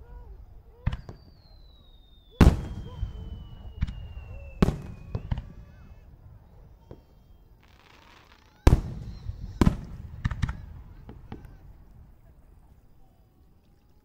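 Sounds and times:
small firework pops: 0:00.8 - 0:12.7
firework whistle sliding down: 0:01.0 - 0:05.5
firework loud bangs: 0:02.4 - 0:12.2.

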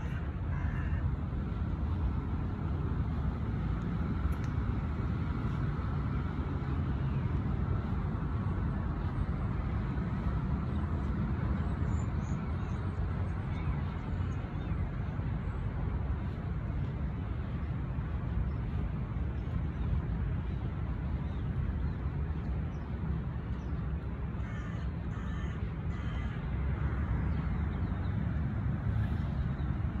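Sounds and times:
low outdoor rumble: 0:00.0 - 0:30.0
crows cawing: 0:00.1 - 0:01.0, 0:24.4 - 0:26.4.

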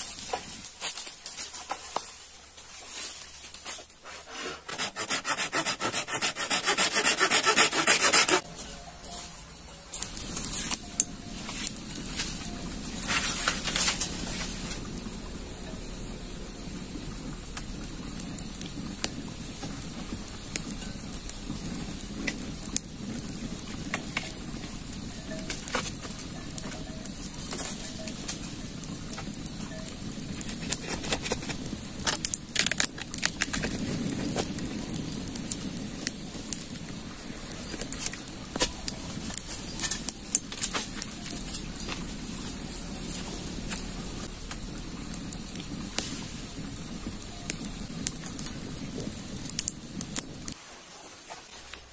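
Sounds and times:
rustling: 0:00.0 - 0:16.0.

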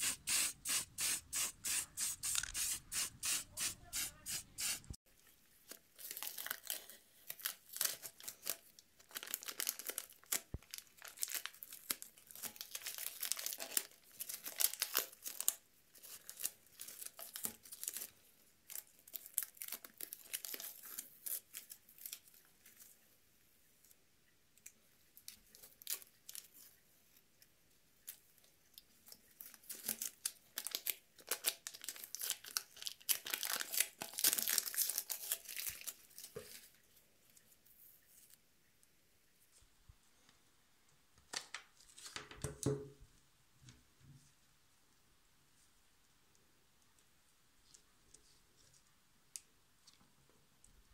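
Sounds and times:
masking tape peeling and crinkling: 0:00.0 - 0:05.0, 0:29.4 - 0:36.7.

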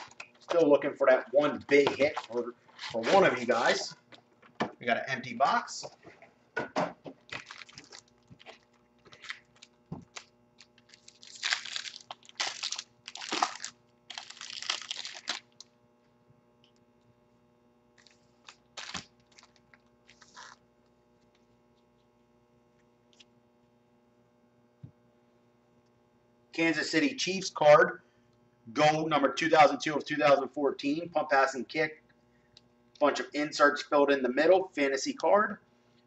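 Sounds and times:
foil packs crinkling: 0:01.9 - 0:03.9, 0:07.3 - 0:15.7, 0:18.0 - 0:20.6.

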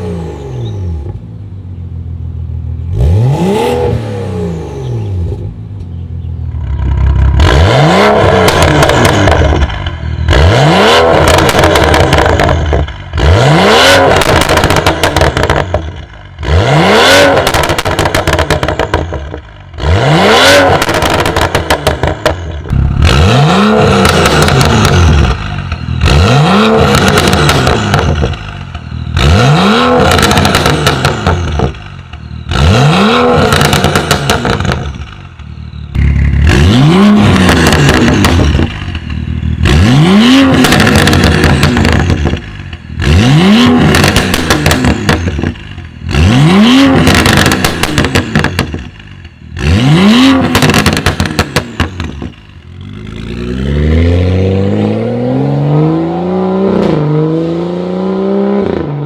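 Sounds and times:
car engine revving: 0:02.6 - 0:05.8, 0:06.5 - 0:59.0
exhaust crackles and pops: 0:08.2 - 0:10.1, 0:11.1 - 0:13.2, 0:14.0 - 0:16.4, 0:17.3 - 0:19.8, 0:20.6 - 0:29.3, 0:29.9 - 0:53.2.

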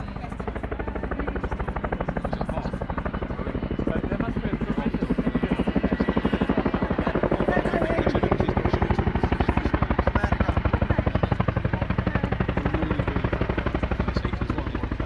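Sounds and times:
helicopter rotors chopping: 0:00.0 - 0:15.0.

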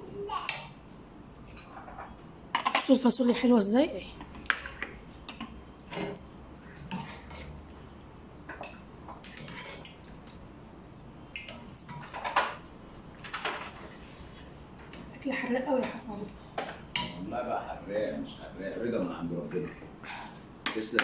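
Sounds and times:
dishes clattering: 0:01.5 - 0:03.0, 0:11.3 - 0:12.6, 0:13.2 - 0:13.7, 0:16.6 - 0:17.3, 0:20.6 - 0:21.0.

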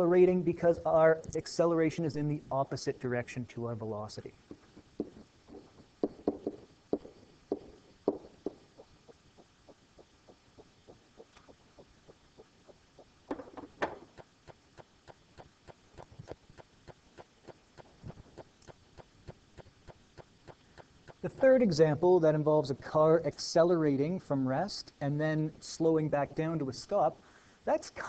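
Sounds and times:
faint steady ticking: 0:00.0 - 0:27.7
stylus tapping and scraping: 0:04.5 - 0:21.4
loud knocks: 0:05.0 - 0:08.9, 0:13.3 - 0:14.2.

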